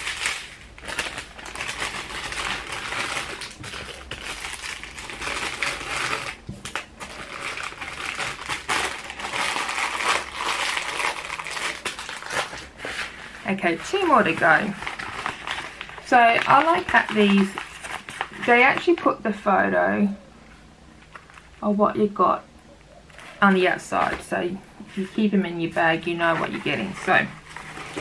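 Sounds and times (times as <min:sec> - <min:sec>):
plastic packaging crinkling: 0:00.0 - 0:19.1, 0:21.0 - 0:21.6, 0:25.9 - 0:28.0.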